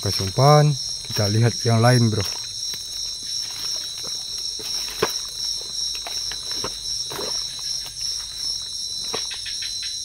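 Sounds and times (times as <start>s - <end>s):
crickets chirping: 0.0s - 10.0s
footsteps through leaf litter: 1.8s - 9.4s.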